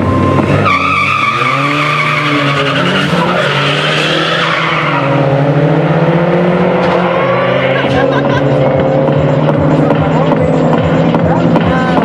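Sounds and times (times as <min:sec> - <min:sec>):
race car engine revving: 0:00.0 - 0:12.0
tyres squealing: 0:00.2 - 0:05.2.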